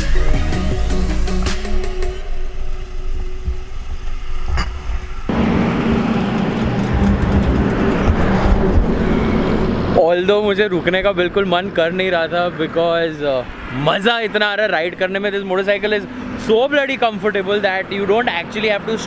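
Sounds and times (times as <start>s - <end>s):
road and wind noise: 2.4s - 19.0s
motorcycle engine running: 5.3s - 10.0s.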